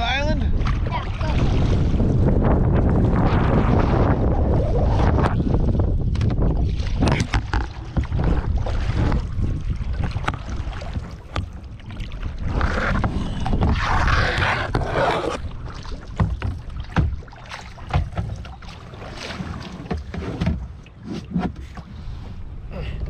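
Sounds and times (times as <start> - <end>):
wind on microphone: 0.0 - 16.4
paddle splashing in water: 0.6 - 22.2
sharp knocks: 16.2 - 17.3.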